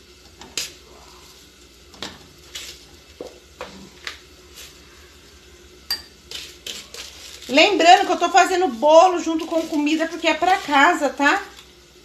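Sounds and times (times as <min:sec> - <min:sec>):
spoon scooping sugar: 0:02.3 - 0:11.7.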